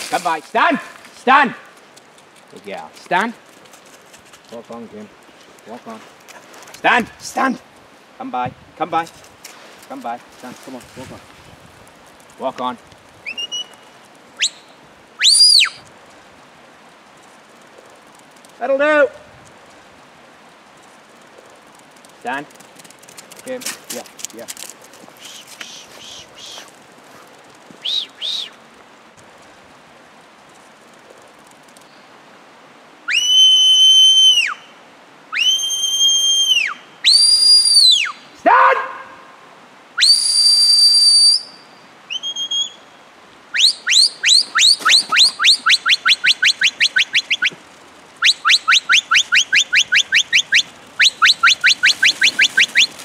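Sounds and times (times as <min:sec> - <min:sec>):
shepherd whistling commands: 0:13.3 - 0:13.8, 0:14.4 - 0:15.8, 0:27.8 - 0:28.6, 0:35.4 - 0:38.9, 0:42.1 - 0:42.8, 0:43.6 - 0:47.5, 0:48.2 - 0:52.9.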